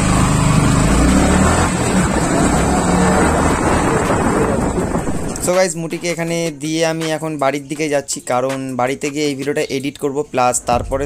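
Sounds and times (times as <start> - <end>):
motorcycle engine running: 0.0 - 5.5
wind rush on microphone: 1.9 - 6.5.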